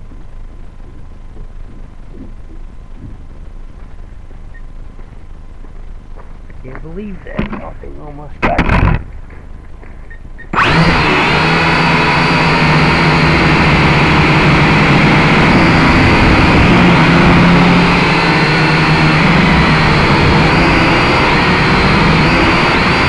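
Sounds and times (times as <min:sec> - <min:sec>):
quadcopter motors buzzing whine: 0:06.7 - 0:09.2, 0:10.0 - 0:23.0.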